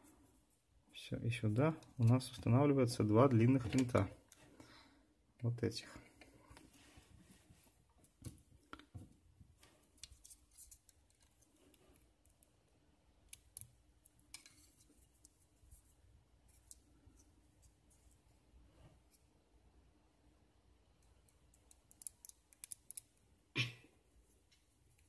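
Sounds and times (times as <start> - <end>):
small plastic clicks and taps: 21.0 - 23.1.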